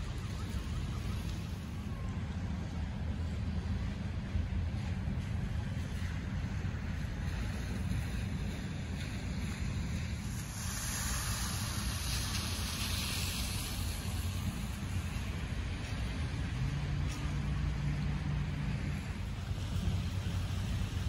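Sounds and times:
tyres hissing on wet pavement: 6.5 - 21.0.

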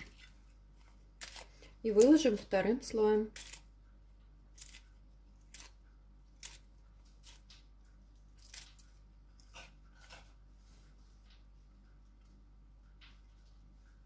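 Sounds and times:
lettuce leaves tearing: 4.6 - 4.8, 6.4 - 7.5, 8.4 - 10.2.

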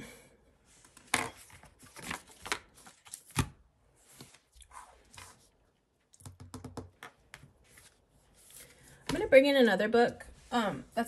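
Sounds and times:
paper sheets rustling: 0.8 - 5.5.

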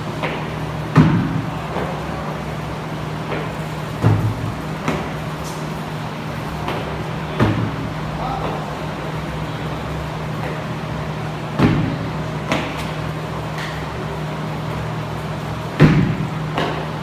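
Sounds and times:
steady low hum: 0.0 - 17.0
heavy landing thumps on wooden box: 0.2 - 1.5, 3.3 - 5.1, 11.6 - 12.8, 15.8 - 16.8.

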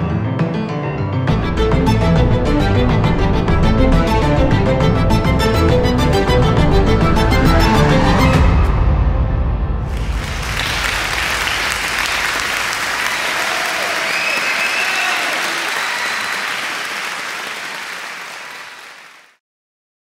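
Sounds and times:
audience applauding: 9.9 - 19.4.

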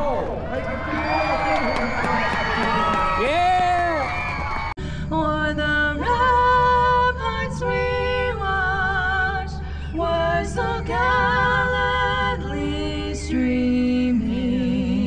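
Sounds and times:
woman singing with vibrato: 5.0 - 15.0.

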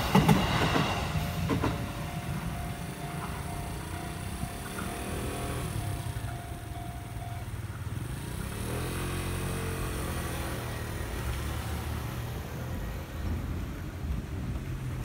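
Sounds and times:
crossing warning tone: 0.0 - 13.8
vehicle engines idling: 0.0 - 15.0
engine revving: 3.4 - 6.8, 7.9 - 12.2.

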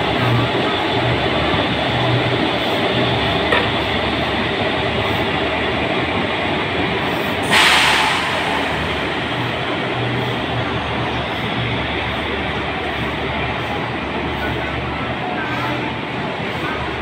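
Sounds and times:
locomotive rumbling past: 0.0 - 17.0
burst of hissing: 7.4 - 9.2.

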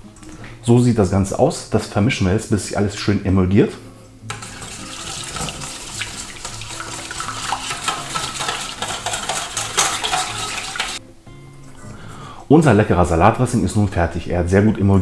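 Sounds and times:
whisk rattling in metal bowl: 4.3 - 11.0.

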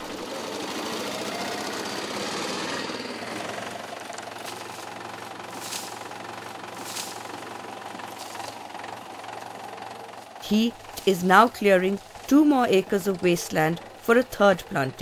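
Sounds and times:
auto-rickshaw engine driving past: 0.0 - 15.0
tractor engine running: 0.0 - 15.0.

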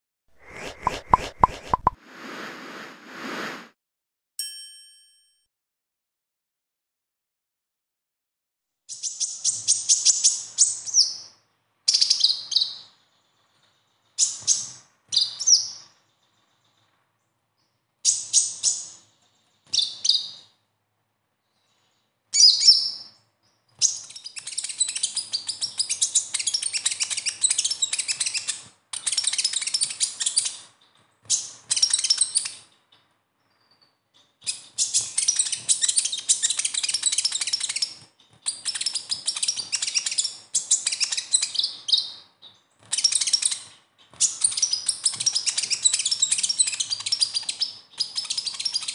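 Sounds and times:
bird rattling chirps: 0.4 - 2.0, 34.5 - 41.6, 42.9 - 48.9.

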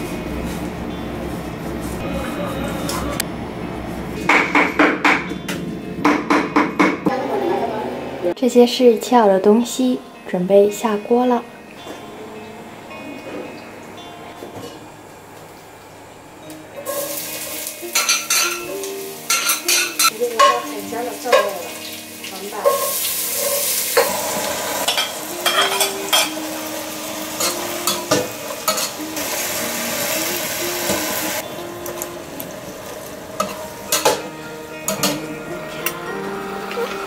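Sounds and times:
vegetables sizzling in oil: 16.8 - 35.4.

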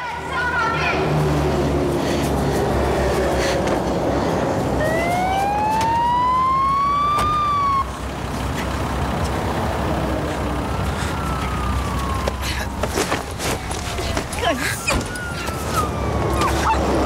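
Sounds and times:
siren wailing: 4.7 - 8.0, 9.9 - 17.0.

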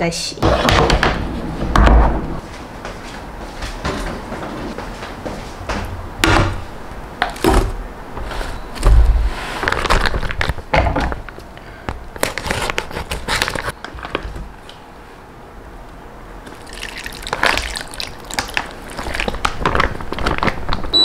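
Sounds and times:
liquid dripping and splashing: 16.4 - 19.9.

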